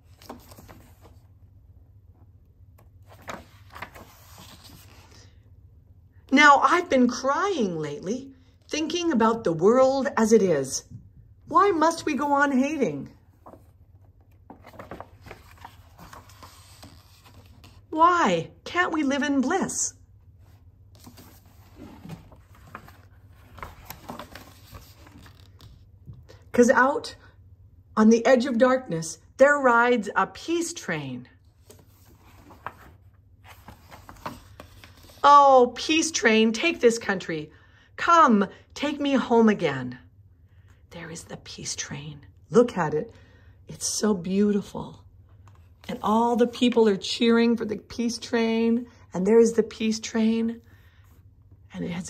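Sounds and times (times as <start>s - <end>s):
book page turning: 0.0s - 1.3s, 2.8s - 5.2s, 13.3s - 17.9s, 20.4s - 25.9s, 31.5s - 35.2s.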